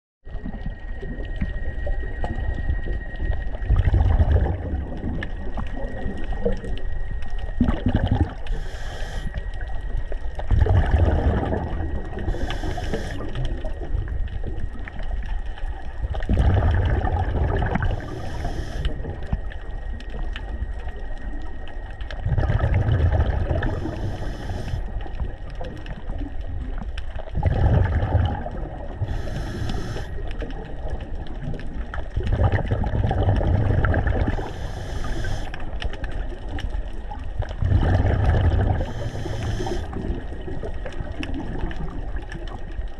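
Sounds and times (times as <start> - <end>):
underwater sea water wash: 0.2 - 42.9
high hisses: 8.5 - 9.4, 12.3 - 13.2, 17.9 - 18.9, 23.7 - 24.8, 29.1 - 30.2, 34.4 - 35.6, 38.8 - 39.9.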